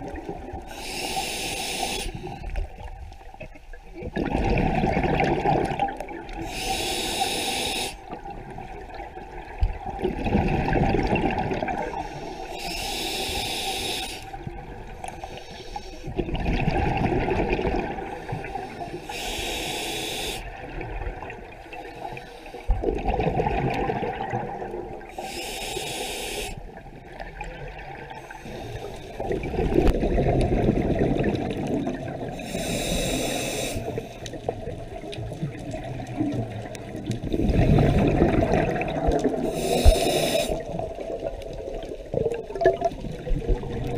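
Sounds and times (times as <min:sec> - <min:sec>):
regulator inhale hiss: 0:00.7 - 0:02.6, 0:06.4 - 0:08.2, 0:11.9 - 0:14.4, 0:15.0 - 0:16.2, 0:18.1 - 0:20.6, 0:21.8 - 0:22.7, 0:25.1 - 0:26.8, 0:28.2 - 0:29.2, 0:32.3 - 0:34.4, 0:39.4 - 0:40.8
exhaled bubbles rushing: 0:04.0 - 0:06.4, 0:08.2 - 0:12.0, 0:16.2 - 0:18.2, 0:22.7 - 0:25.1, 0:29.2 - 0:32.4, 0:34.3 - 0:43.9.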